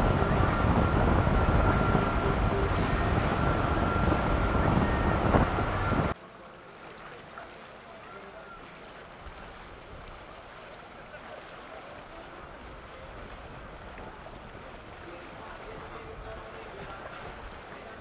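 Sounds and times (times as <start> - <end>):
wind noise on microphone: 0.0 - 6.2, 12.4 - 18.0
boat engine: 0.0 - 18.0
boats on water: 0.0 - 18.0.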